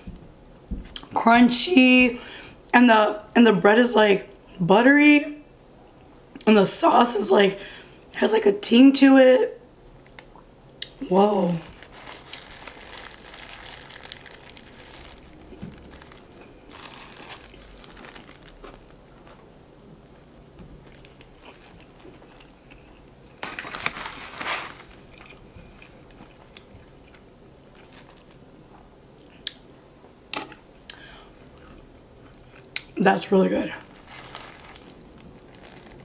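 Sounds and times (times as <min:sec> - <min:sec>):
chewing crispy food: 0:10.2 - 0:19.5, 0:20.8 - 0:28.5, 0:33.8 - 0:36.0
crispy breading crunching: 0:10.8 - 0:19.5, 0:33.8 - 0:36.0.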